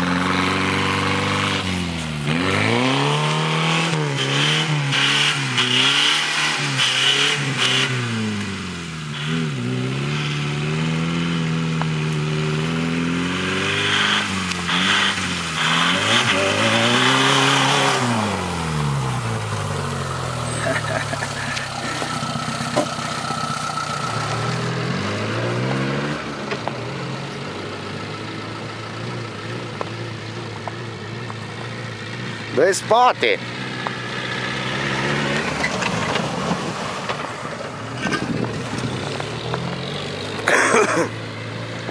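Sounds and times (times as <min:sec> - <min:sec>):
engine revving: 0:00.0 - 0:41.9
tyres hissing throwing snow: 0:20.5 - 0:23.2.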